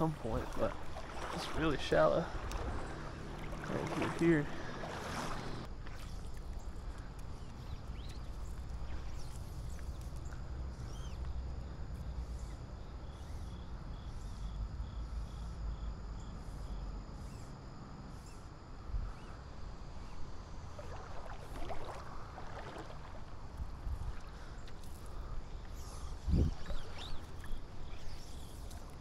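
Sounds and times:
water splashing: 0:00.0 - 0:06.6, 0:20.7 - 0:24.4
water sloshing around wader: 0:00.0 - 0:11.1, 0:20.5 - 0:29.0
river current rumble: 0:00.0 - 0:11.9, 0:19.0 - 0:29.0.

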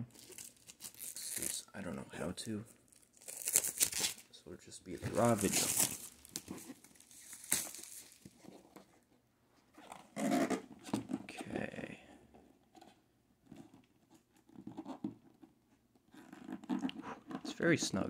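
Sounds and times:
cardboard rustling and scraping: 0:04.9 - 0:09.0.

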